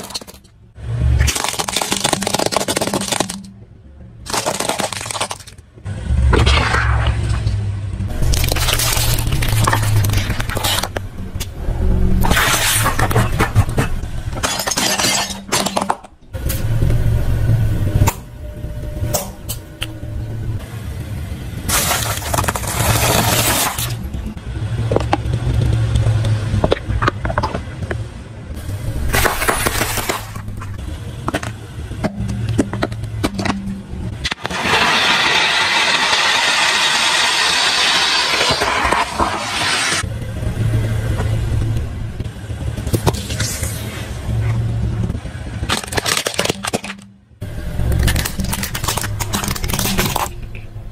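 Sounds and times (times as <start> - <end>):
tyre crushing small objects: 0.0 - 3.5, 4.2 - 5.7, 6.3 - 11.5, 12.2 - 16.2, 21.7 - 24.1, 29.0 - 34.6, 45.6 - 47.1, 47.7 - 50.7
snack packets crunching and bursting: 1.2 - 3.5, 4.3 - 5.6, 8.1 - 11.0, 12.2 - 13.9, 21.7 - 24.0, 29.0 - 31.5, 45.6 - 47.0, 47.7 - 50.5
firework fountain hissing: 34.4 - 40.0
car engine low hum: 40.0 - 45.7.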